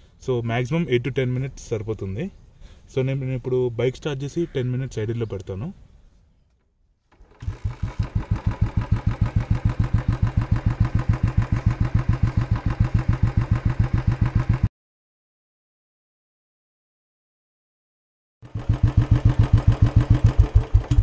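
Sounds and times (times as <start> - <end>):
motorcycle engine idling: 7.4 - 14.7, 18.4 - 21.0.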